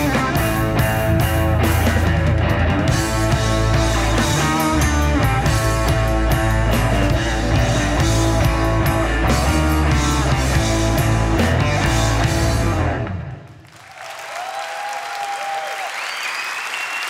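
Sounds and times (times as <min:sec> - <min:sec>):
bass and drums: 0:00.0 - 0:13.5
electric guitar: 0:00.0 - 0:13.6.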